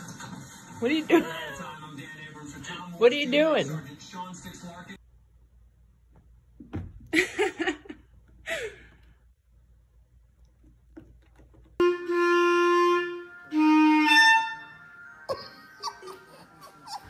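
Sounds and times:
wind instrument long notes: 0:11.8 - 0:15.3.

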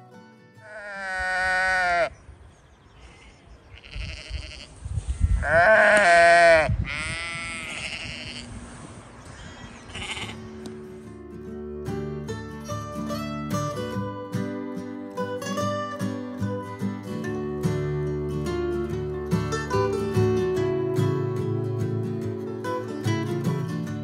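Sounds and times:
sheep bleating: 0:00.6 - 0:02.2, 0:03.0 - 0:08.6, 0:09.5 - 0:10.5.

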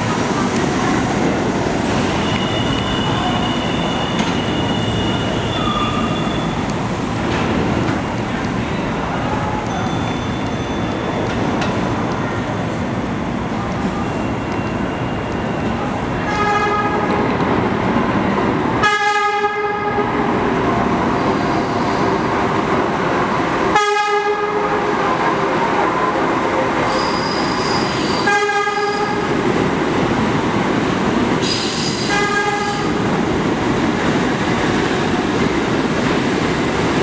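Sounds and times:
subway train rumbling: 0:00.0 - 0:37.0
train horn blasts: 0:16.2 - 0:17.2, 0:18.8 - 0:20.1, 0:23.7 - 0:24.7, 0:28.2 - 0:29.3, 0:32.0 - 0:33.0.

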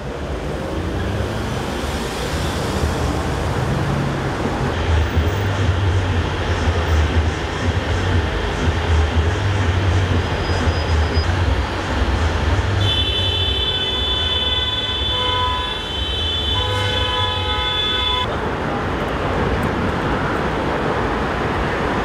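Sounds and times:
traffic rumble: 0:00.0 - 0:22.0
horn blowing long chord: 0:12.8 - 0:18.3.

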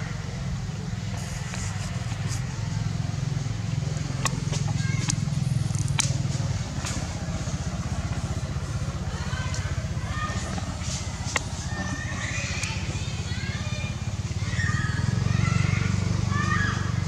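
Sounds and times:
sharp clicks: 0:04.2 - 0:07.0.

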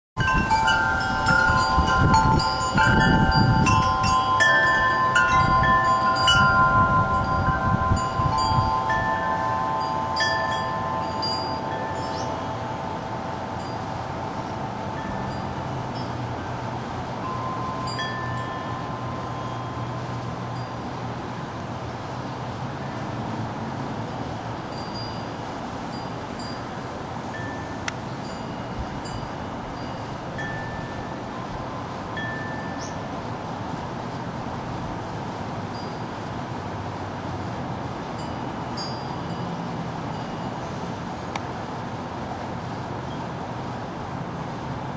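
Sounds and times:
clear ringing tones: 0:00.2 - 0:16.4
wind chimes ringing: 0:00.2 - 0:21.1, 0:24.1 - 0:33.8, 0:35.7 - 0:36.4, 0:38.1 - 0:40.8
wind rumble on microphone: 0:00.2 - 0:44.9.

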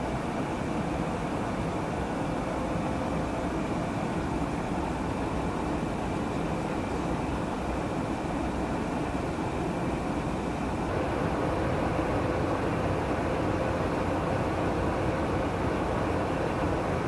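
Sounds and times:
faint steady hum: 0:00.0 - 0:17.0
rushing air: 0:10.8 - 0:17.0
jet engines roaring: 0:10.9 - 0:17.0.

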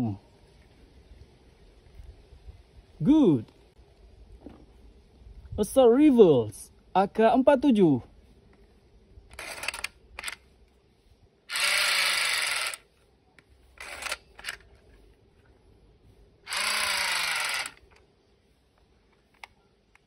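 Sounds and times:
toy gun sound effect bursts: 0:16.5 - 0:17.8.

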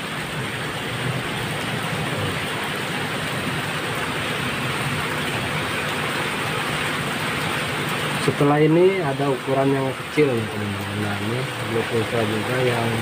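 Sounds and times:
heavy rain: 0:00.0 - 0:13.0.

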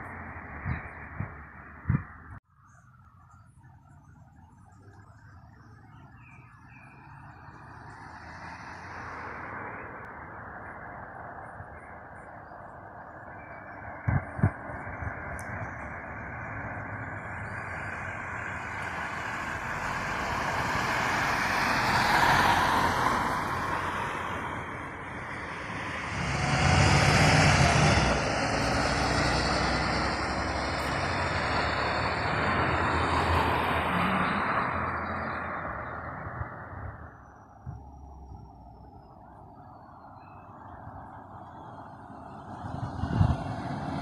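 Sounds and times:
road traffic: 0:00.0 - 0:44.0
car passing: 0:03.2 - 0:44.0
bus driving past: 0:06.0 - 0:44.0.

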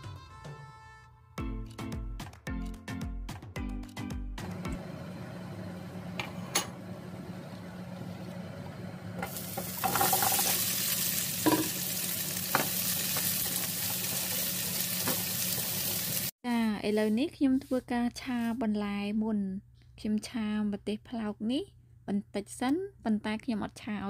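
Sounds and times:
peppers sizzling in hot oil: 0:09.2 - 0:16.3.

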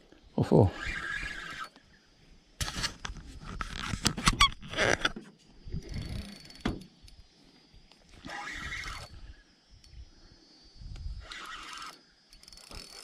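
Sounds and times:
wavering reel buzz: 0:00.7 - 0:01.8, 0:05.7 - 0:07.2, 0:08.1 - 0:09.4, 0:11.0 - 0:13.0
fishing reel clicks and rattles: 0:05.9 - 0:07.2, 0:11.1 - 0:13.0.

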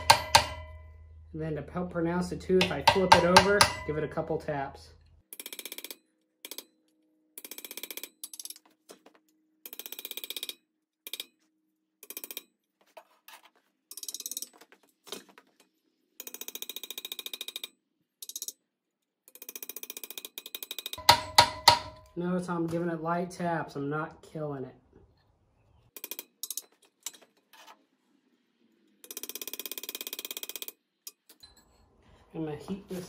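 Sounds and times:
hammer tapping a chisel: 0:00.0 - 0:00.9, 0:02.6 - 0:04.0, 0:19.5 - 0:22.2.

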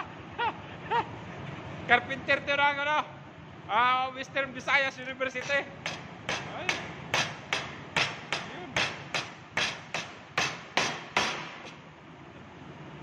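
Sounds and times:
hammer striking wooden frame: 0:05.4 - 0:11.8.

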